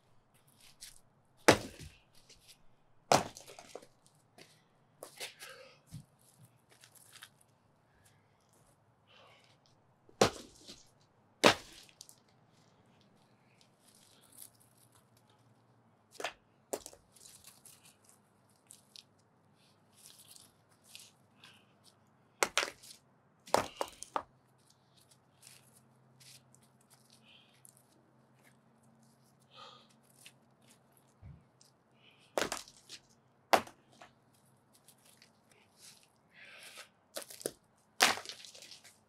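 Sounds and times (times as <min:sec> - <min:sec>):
sledgehammer striking concrete: 0:01.5 - 0:01.9, 0:03.1 - 0:03.7, 0:10.2 - 0:10.7, 0:11.4 - 0:11.8, 0:33.6 - 0:33.8.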